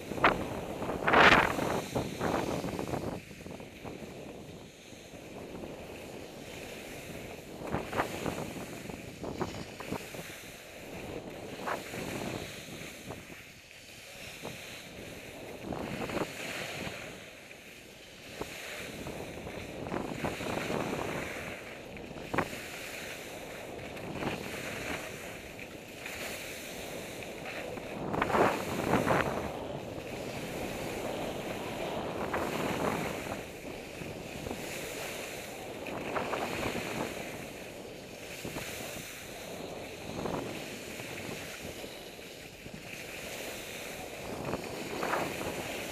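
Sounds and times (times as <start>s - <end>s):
skis scraping over snow: 0.0s - 45.9s
wind on microphone: 0.0s - 45.9s.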